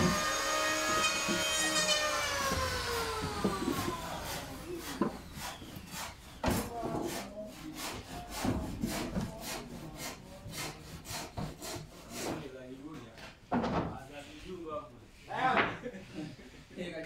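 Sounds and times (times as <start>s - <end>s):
hand rasping wood: 0.0s - 12.4s.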